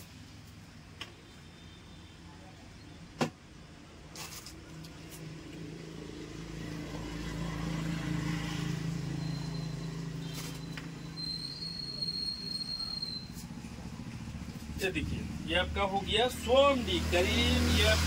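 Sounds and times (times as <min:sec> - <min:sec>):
vehicle engine passing: 0:04.6 - 0:11.2, 0:13.2 - 0:18.0.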